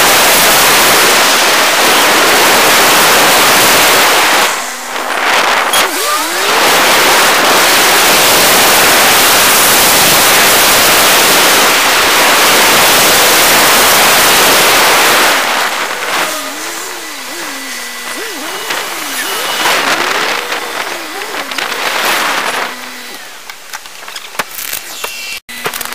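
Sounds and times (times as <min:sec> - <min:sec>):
car road and engine noise: 0:00.0 - 0:24.8
wavering pitched sound: 0:04.5 - 0:09.1, 0:13.0 - 0:23.4.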